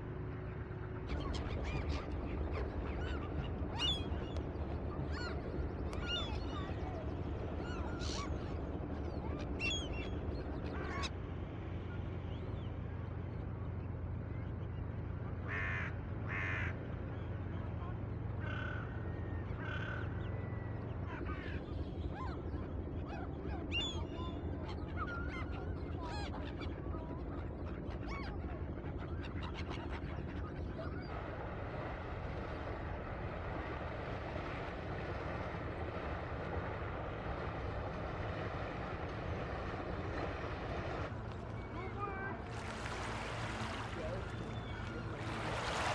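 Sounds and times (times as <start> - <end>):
boat engine humming: 0.0 - 45.9
wind: 0.0 - 45.9
gulls calling: 0.1 - 45.9
water washing: 42.3 - 45.9.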